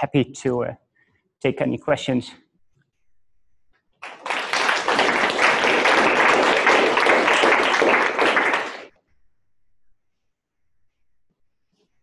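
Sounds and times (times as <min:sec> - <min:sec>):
audience applause: 0:04.0 - 0:08.9.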